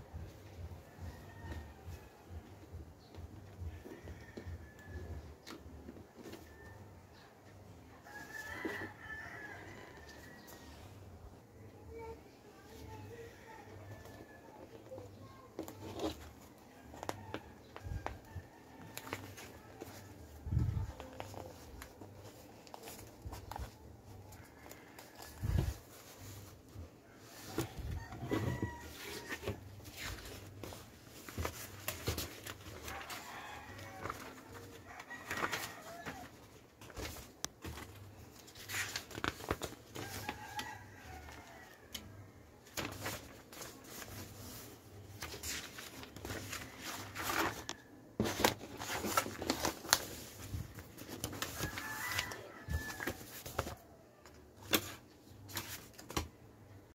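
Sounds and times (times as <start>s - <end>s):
rooster crowing: 8.0s - 10.7s, 27.3s - 29.6s, 32.7s - 36.4s, 40.0s - 42.3s, 51.3s - 54.1s
paper rustling and crinkling: 13.9s - 42.0s, 42.6s - 56.3s.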